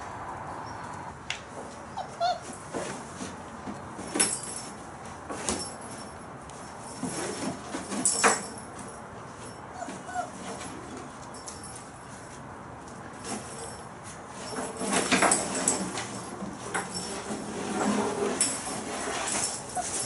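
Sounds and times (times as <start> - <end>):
puppies scraping and rustling: 0.8 - 20.0
puppy whimpers: 1.9 - 2.6, 9.7 - 10.5, 19.7 - 20.0.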